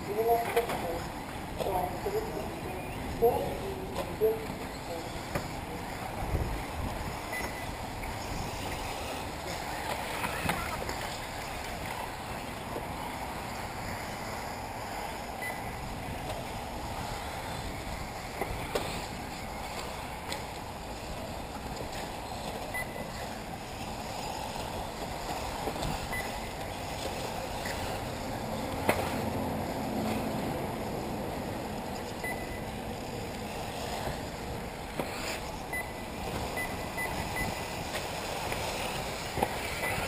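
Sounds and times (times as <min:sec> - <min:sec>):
wind on microphone: 0:05.2 - 0:12.4
brief high beeps: 0:07.3 - 0:07.7, 0:22.7 - 0:23.1, 0:32.2 - 0:32.7, 0:35.7 - 0:36.0, 0:36.6 - 0:37.6.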